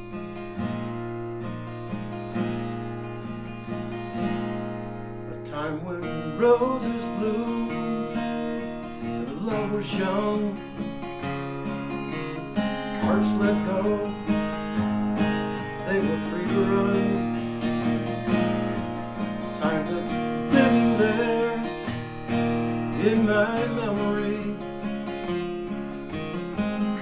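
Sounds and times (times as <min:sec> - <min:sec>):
acoustic guitar strummed: 0:00.0 - 0:27.0
man singing: 0:05.3 - 0:10.9, 0:12.9 - 0:14.6, 0:15.6 - 0:17.4, 0:19.4 - 0:22.0, 0:22.8 - 0:24.8.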